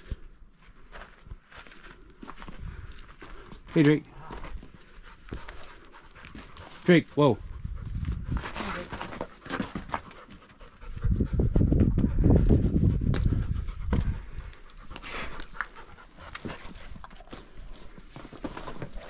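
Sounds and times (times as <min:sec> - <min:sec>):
dog panting: 0:04.3 - 0:19.0.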